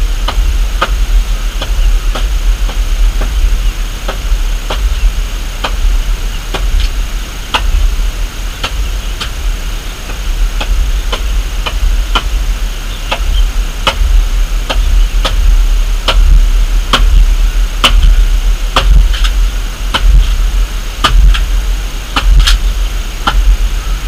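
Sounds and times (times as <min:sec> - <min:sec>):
hand tool striking wood: 0:01.6 - 0:03.4, 0:13.1 - 0:14.1, 0:14.7 - 0:15.4, 0:18.8 - 0:20.4, 0:21.0 - 0:21.5, 0:22.1 - 0:22.6, 0:23.2 - 0:23.4.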